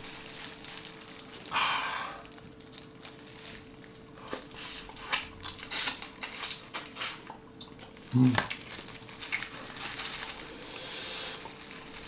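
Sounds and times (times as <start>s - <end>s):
plastic gloves crinkling: 0.0s - 12.0s
crunching and biting shrimp: 2.2s - 12.0s.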